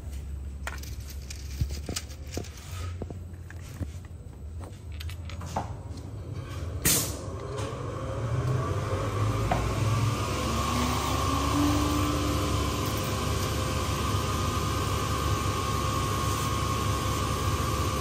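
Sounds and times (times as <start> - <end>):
vehicle engine rising in pitch: 7.2 - 15.2.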